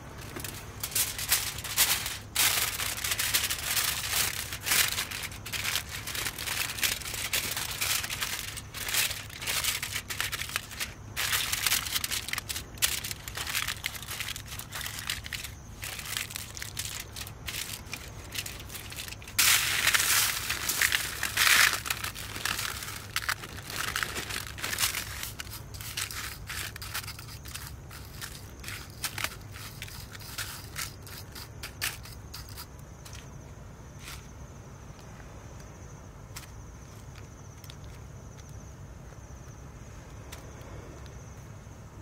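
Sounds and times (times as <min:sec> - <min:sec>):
aluminium foil crinkling: 0:00.2 - 0:32.7.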